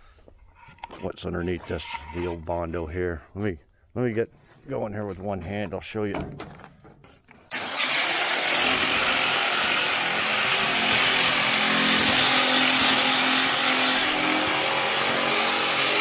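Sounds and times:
power grinder grinding metal: 7.5s - 16.0s.

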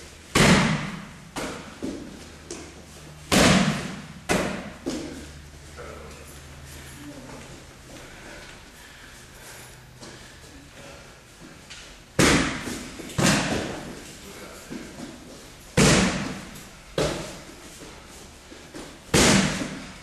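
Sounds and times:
kicks striking focus pads: 15.8s - 17.2s.

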